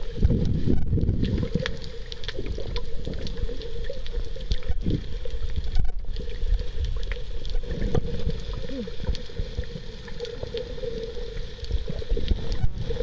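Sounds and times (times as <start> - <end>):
faint clicks and crackles: 0.0 - 13.0
underwater water rumbling: 0.0 - 13.0.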